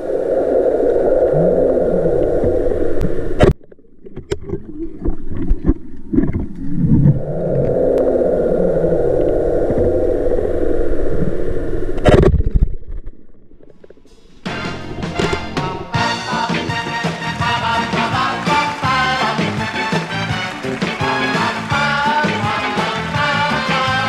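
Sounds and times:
low underwater rumble: 0:00.0 - 0:16.2.

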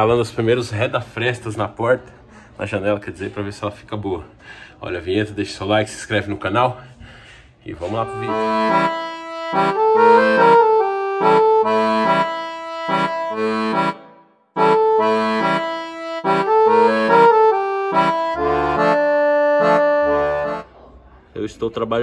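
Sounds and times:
intro music with repeating chords: 0:08.0 - 0:20.6.

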